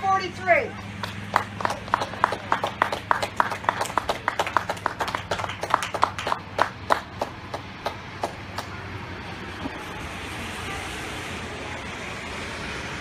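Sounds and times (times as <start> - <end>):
hand clapping: 1.0 - 8.7.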